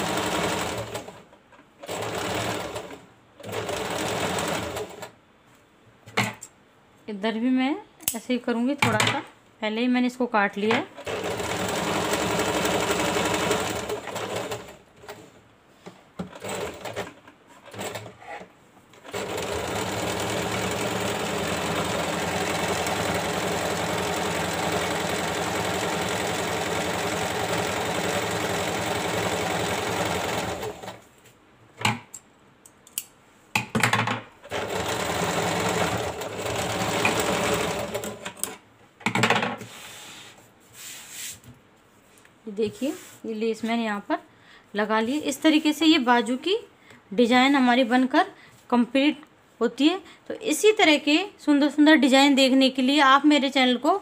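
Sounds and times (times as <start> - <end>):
sewing machine stitching: 0.0 - 5.1, 10.9 - 15.3, 16.2 - 31.0, 34.4 - 38.5.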